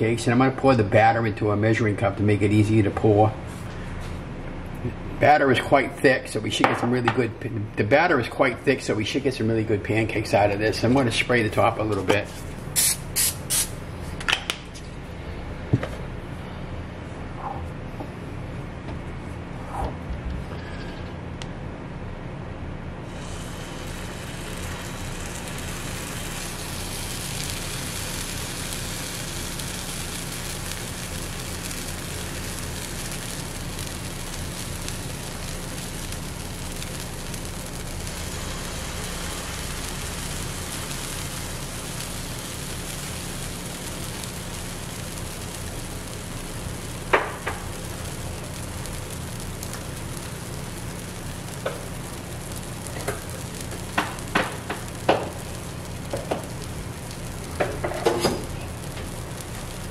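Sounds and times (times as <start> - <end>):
steady low hum: 0.0 - 59.9
batter sizzling on a griddle: 12.3 - 14.1, 23.0 - 59.9.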